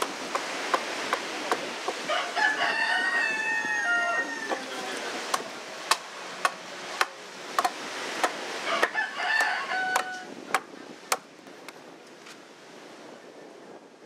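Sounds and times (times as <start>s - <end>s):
adze chopping wood: 0.0s - 2.0s, 5.3s - 11.3s
rooster crowing: 2.1s - 4.7s, 8.6s - 10.3s.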